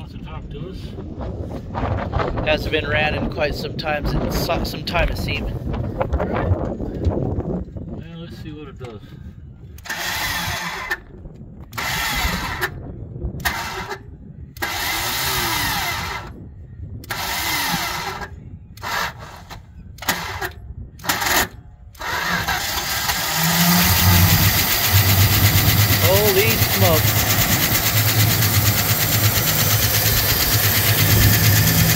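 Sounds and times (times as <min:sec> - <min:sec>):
car starter cranking engine: 0:09.8 - 0:11.0, 0:11.8 - 0:12.8, 0:13.4 - 0:14.0, 0:14.6 - 0:16.3, 0:17.0 - 0:31.9
engine firing: 0:09.8 - 0:11.0, 0:14.6 - 0:16.4, 0:17.0 - 0:31.9.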